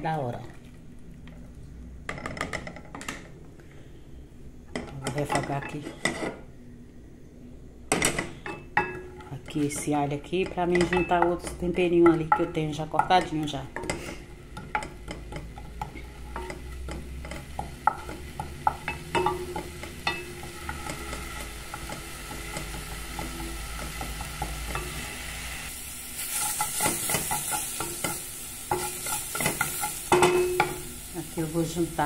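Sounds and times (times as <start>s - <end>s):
wooden spoon knocking and scraping pot: 7.9s - 25.0s
garlic sizzling in oil: 9.1s - 32.0s.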